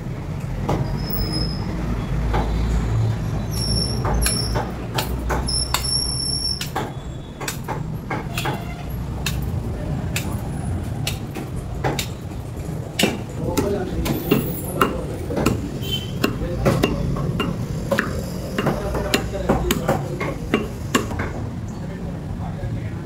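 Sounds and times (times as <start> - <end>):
bus engine low rumble: 0.0 - 22.9
sharp clicks and knocks: 3.6 - 21.5.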